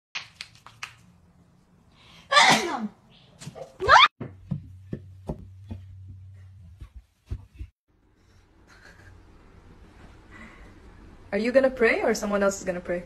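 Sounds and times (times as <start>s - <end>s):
loud sneeze-like bursts: 2.3s - 2.9s.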